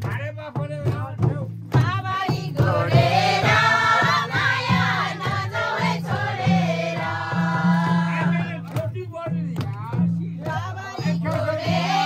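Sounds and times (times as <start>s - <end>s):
song with voices singing: 1.7s - 8.8s, 9.6s - 12.0s.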